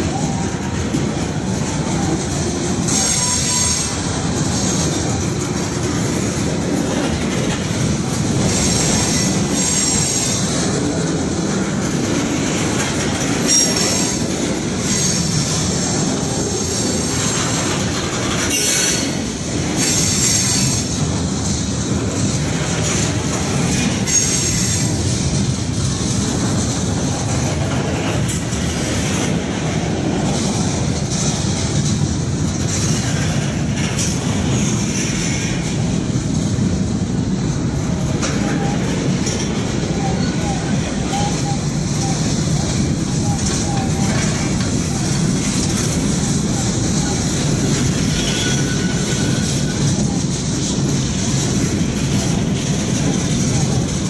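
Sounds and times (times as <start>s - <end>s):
freight train wheels rumbling: 0.0s - 54.0s
high-pitched wheel squeal: 48.1s - 49.8s.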